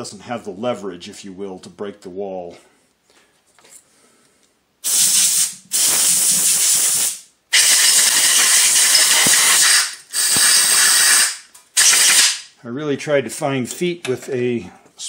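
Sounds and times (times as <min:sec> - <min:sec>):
compressed air blow gun hissing: 0:04.8 - 0:12.4.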